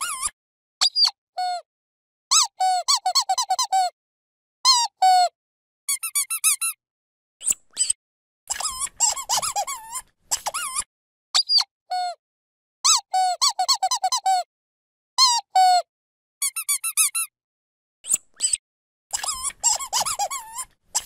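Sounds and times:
dog squeaky toy squeaking: 0:00.0 - 0:01.2, 0:02.3 - 0:03.9, 0:05.9 - 0:06.8, 0:07.8 - 0:10.8, 0:12.9 - 0:14.4, 0:16.4 - 0:17.3, 0:18.4 - 0:21.0.

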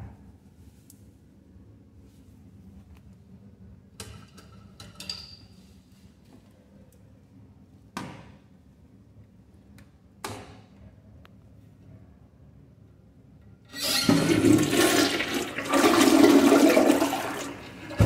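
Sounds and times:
toilet flushing: 0:13.7 - 0:18.0.

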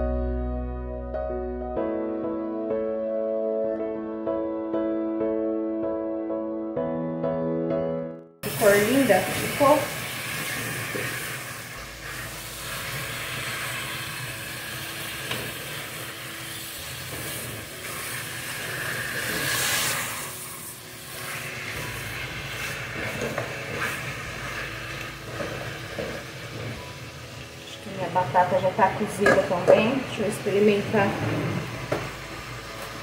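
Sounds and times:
chicken sizzling in oil: 0:08.4 - 0:31.0.

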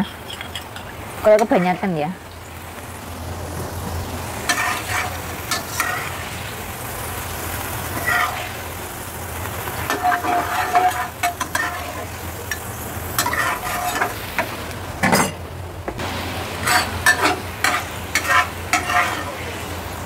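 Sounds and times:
sauce sizzling: 0:00.0 - 0:20.0
metal ladle scraping a wok: 0:04.4 - 0:06.2, 0:07.9 - 0:08.6, 0:09.9 - 0:15.4, 0:16.6 - 0:19.6.

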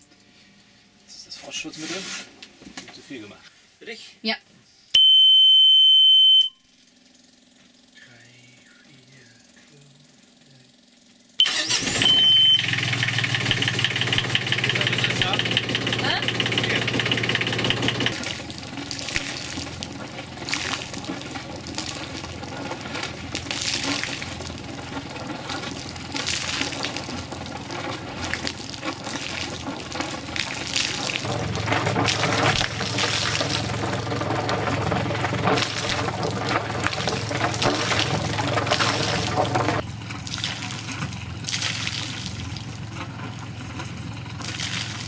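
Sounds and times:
marine diesel engine running: 0:11.4 - 0:45.0
cooling water splashing on ground: 0:13.2 - 0:43.0, 0:44.2 - 0:45.0.

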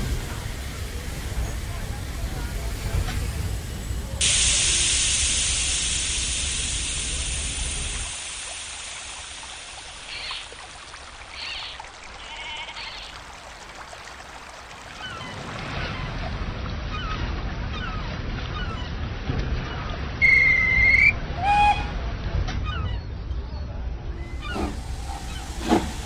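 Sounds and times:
stream running water: 0:04.2 - 0:19.3, 0:24.2 - 0:26.0.

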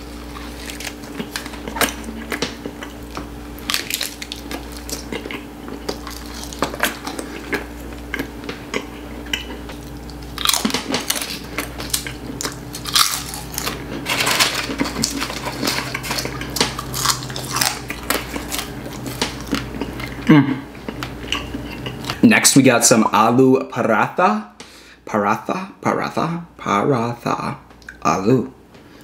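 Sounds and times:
biting and chewing bread: 0:00.0 - 0:22.2.

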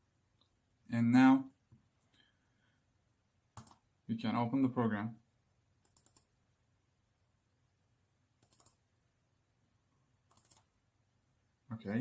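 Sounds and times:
computer mouse clicks: 0:03.6 - 0:03.8, 0:05.8 - 0:06.3, 0:08.4 - 0:08.8, 0:10.3 - 0:10.7.

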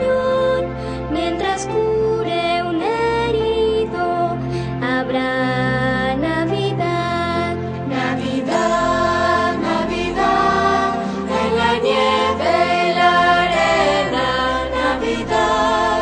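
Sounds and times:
music with singing voices: 0:00.0 - 0:16.0.

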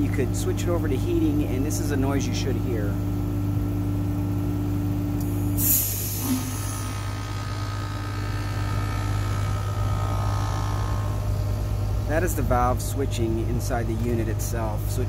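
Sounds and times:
heat pump humming: 0:00.0 - 0:15.0.

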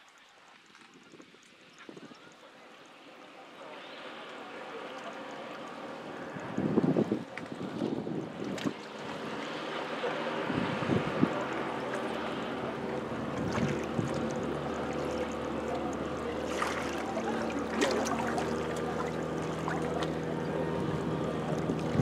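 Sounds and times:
water noise: 0:00.0 - 0:22.0
wind: 0:00.0 - 0:22.0
motorboat engine humming: 0:01.6 - 0:22.0
low engine tone: 0:02.1 - 0:22.0.

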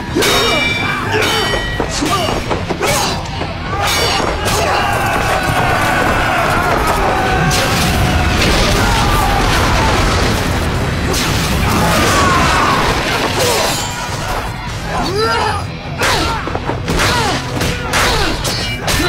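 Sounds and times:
dramatic music: 0:00.0 - 0:19.0
fighters shouting: 0:00.0 - 0:19.0
fireball explosion roar: 0:05.8 - 0:13.4.

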